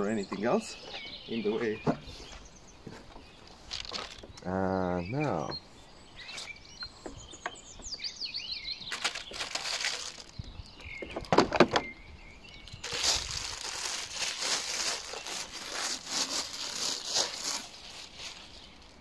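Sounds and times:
plastic wrap crinkling: 8.9s - 10.5s, 12.6s - 19.0s.

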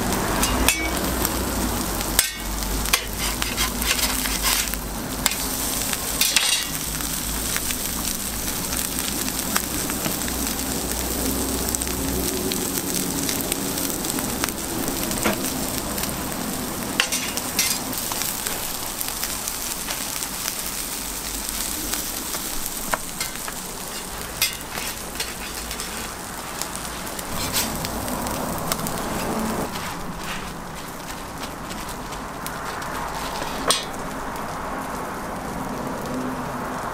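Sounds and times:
food sizzling on griddle: 0.0s - 36.9s
metal spatula clicks and scrapes: 2.2s - 5.6s, 17.0s - 17.8s, 23.2s - 26.1s.

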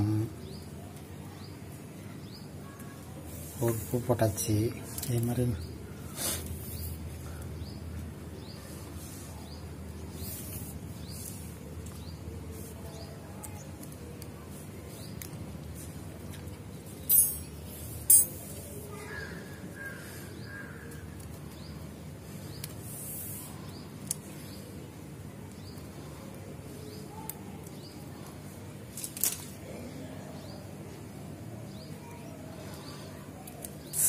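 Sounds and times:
faint bird calls: 18.9s - 21.2s
plastic wire rustling and clicking: 27.3s - 29.6s.

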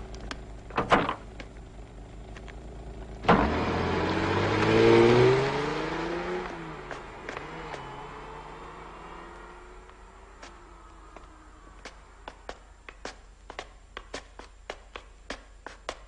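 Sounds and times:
car door clunk: 0.7s - 1.4s, 3.3s - 3.6s
car engine starting and revving: 0.7s - 12.3s.

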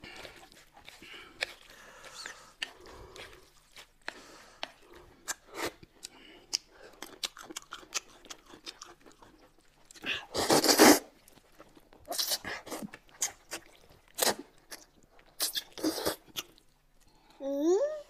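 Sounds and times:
wet chewing: 0.0s - 17.1s
slurping noodles: 9.0s - 11.4s, 12.0s - 14.8s, 15.4s - 16.3s.

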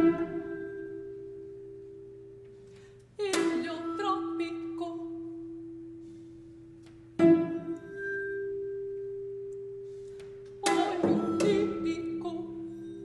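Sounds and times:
vibraphone notes ringing: 7.2s - 13.0s.

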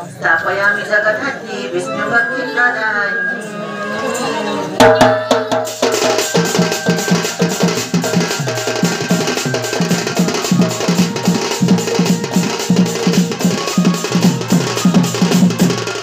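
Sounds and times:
barrel drum played by hand: 4.8s - 16.0s.

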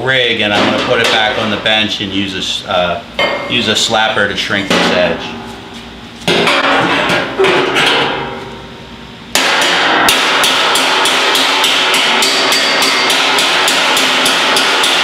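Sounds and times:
hammer blows on ringing metal: 10.1s - 15.0s.

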